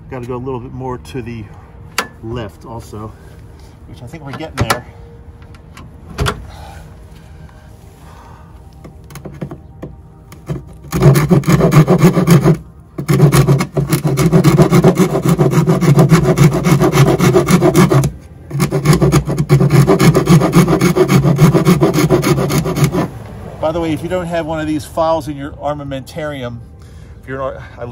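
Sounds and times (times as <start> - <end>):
hand file rasping: 10.5 - 23.1.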